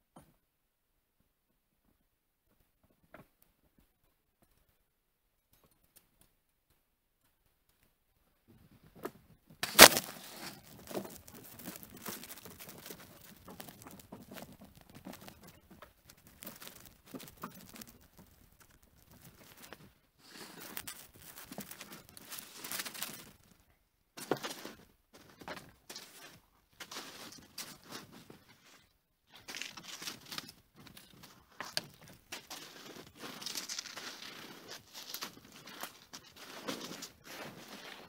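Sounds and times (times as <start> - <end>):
rustling and crunching handling: 9.6 - 38.0.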